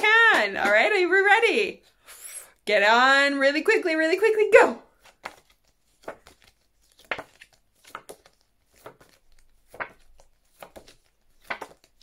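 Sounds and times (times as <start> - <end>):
flashcards flicking: 4.9 - 12.0.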